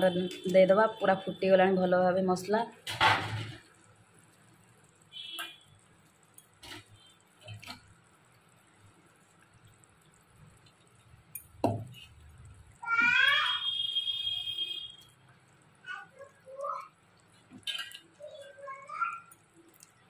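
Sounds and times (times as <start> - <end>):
fish dropped into boiling gravy: 2.8 - 3.8, 17.4 - 18.2.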